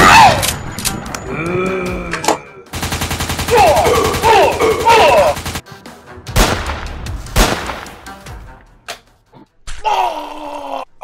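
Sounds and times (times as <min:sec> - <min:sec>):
machine-gun fire: 0:02.8 - 0:04.3, 0:06.4 - 0:07.9.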